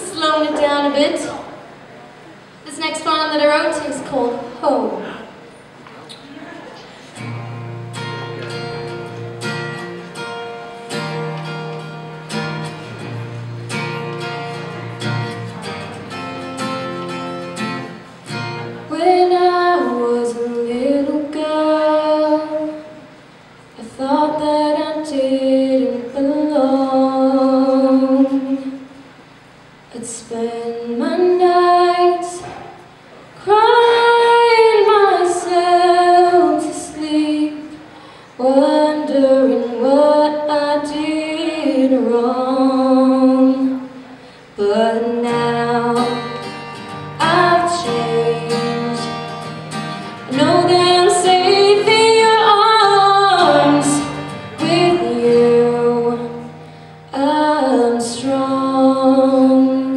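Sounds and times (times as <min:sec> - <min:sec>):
acoustic guitar chords: 0:06.9 - 0:59.9
woman singing: 0:18.9 - 0:23.0, 0:23.8 - 0:28.8, 0:30.0 - 0:32.4, 0:33.4 - 0:44.0, 0:44.6 - 0:46.5, 0:47.1 - 0:49.4, 0:50.2 - 0:59.9.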